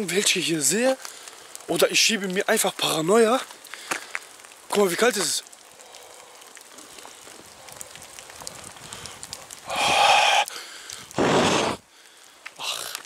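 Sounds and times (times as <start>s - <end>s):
small ticks: 2.3s - 11.2s, 12.0s - 13.0s
man breathing out hard: 8.8s - 12.9s.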